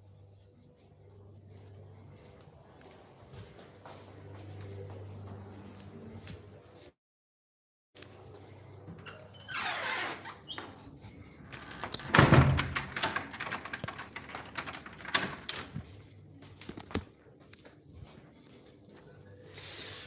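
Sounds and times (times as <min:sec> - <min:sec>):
keys jangling: 0:11.5 - 0:16.0.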